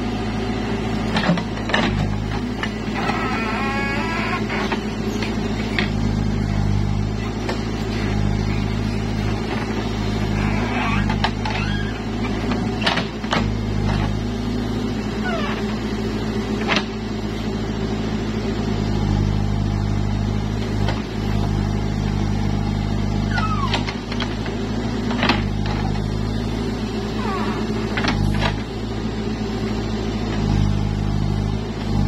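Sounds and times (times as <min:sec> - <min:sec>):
diesel engine running: 0:00.0 - 0:32.0
short high squeaks: 0:02.7 - 0:06.0, 0:10.0 - 0:12.4, 0:15.2 - 0:15.8, 0:23.2 - 0:23.9, 0:27.1 - 0:28.3.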